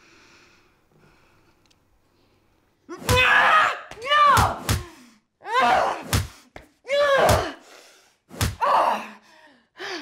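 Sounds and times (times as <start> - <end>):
sharp slam or smack: 8.3 - 8.6.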